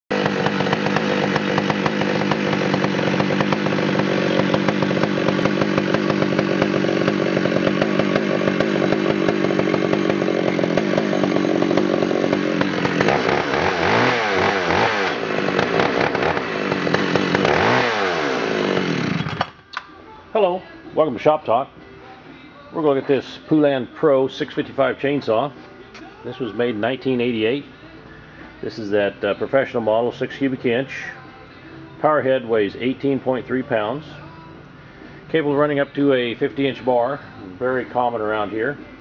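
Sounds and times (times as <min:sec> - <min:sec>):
chainsaw engine revving: 0:00.1 - 0:19.6.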